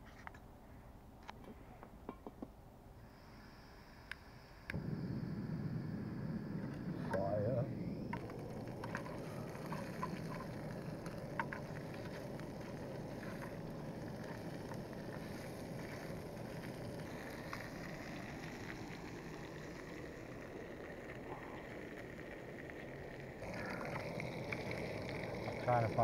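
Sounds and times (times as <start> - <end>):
camping stove burning: 3.0 - 26.0
bacon frying: 8.0 - 26.0.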